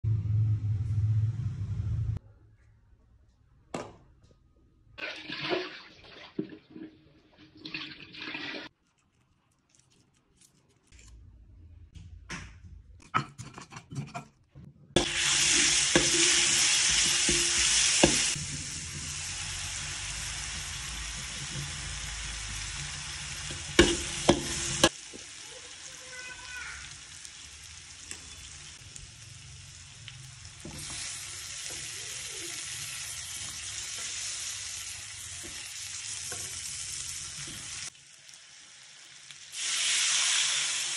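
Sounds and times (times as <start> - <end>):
vegetables sizzling in hot oil: 15.0 - 40.9.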